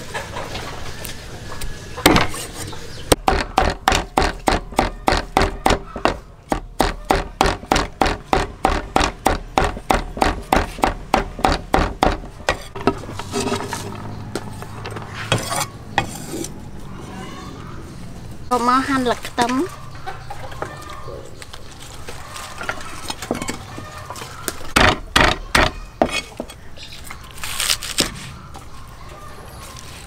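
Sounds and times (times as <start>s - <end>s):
cleaver chopping on wooden board: 3.1s - 12.9s.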